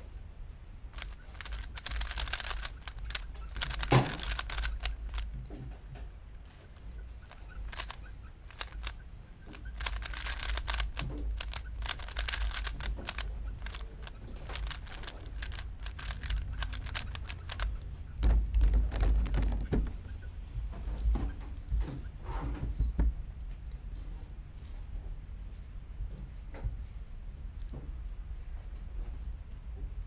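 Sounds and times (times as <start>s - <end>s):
puzzle cube layers clicking: 0.9s - 5.3s, 7.2s - 17.8s.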